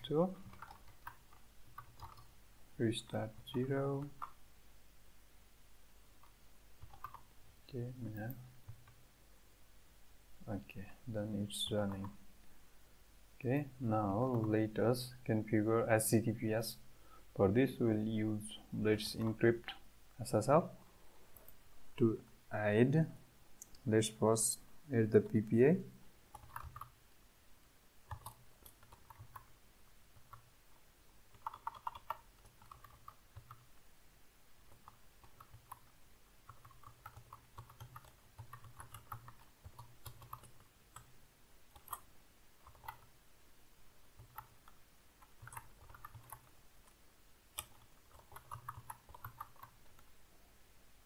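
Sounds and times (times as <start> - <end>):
keyboard typing: 0.0 - 2.3, 3.0 - 4.4, 6.2 - 7.3, 11.8 - 12.2, 14.2 - 14.6, 26.3 - 27.0, 28.1 - 29.5, 31.3 - 33.7, 34.7 - 35.9, 36.5 - 41.1, 41.7 - 43.1, 44.2 - 47.0, 47.6 - 50.1.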